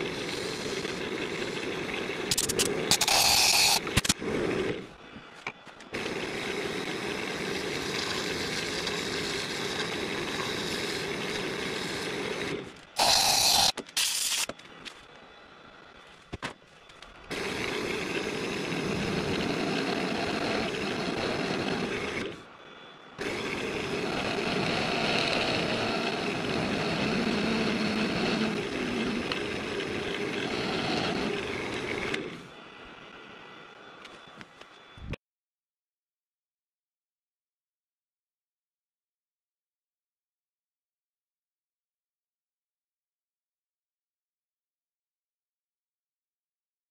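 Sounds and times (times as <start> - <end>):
lathe tool scraping wax: 0.0 - 4.8, 6.0 - 14.5
loud hissing burst: 0.0 - 4.8, 6.0 - 14.5.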